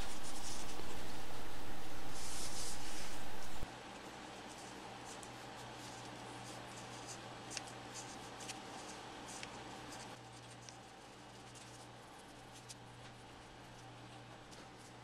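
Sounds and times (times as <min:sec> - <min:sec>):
low hum: 0:00.0 - 0:03.6.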